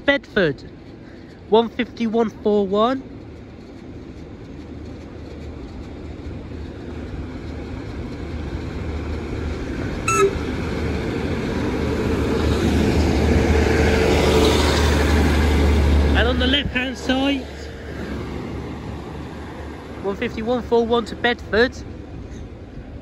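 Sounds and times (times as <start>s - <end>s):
diesel train passing: 0.0s - 23.0s
brief sharp tone: 10.1s - 10.6s.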